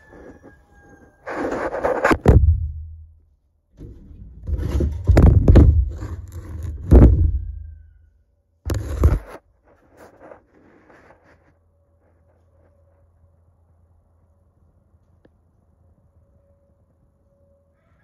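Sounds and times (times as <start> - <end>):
microphone handling noise: 1.3 - 2.9, 8.7 - 9.4.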